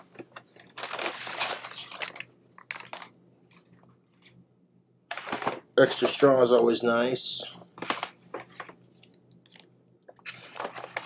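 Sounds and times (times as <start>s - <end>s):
paper bag rustling: 0.6s - 3.1s, 5.1s - 6.2s, 10.2s - 11.0s.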